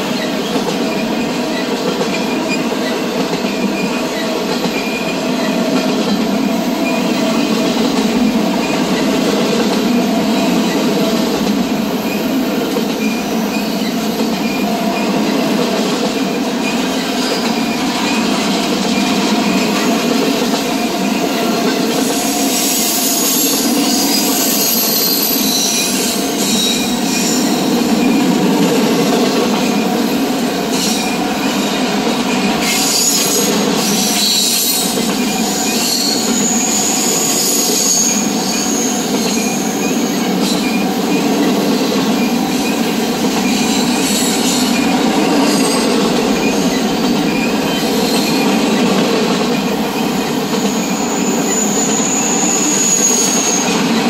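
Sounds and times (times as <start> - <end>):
rail clicks: 0.0 - 54.0
train wheels rumbling on rails: 0.0 - 54.0
high wheel squeal: 20.8 - 30.0, 30.6 - 49.0, 49.8 - 54.0.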